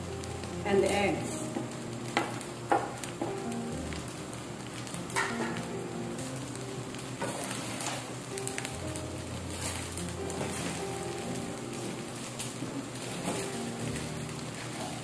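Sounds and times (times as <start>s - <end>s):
background music: 0.0s - 15.0s
rice sizzling in a frying pan: 0.0s - 15.0s.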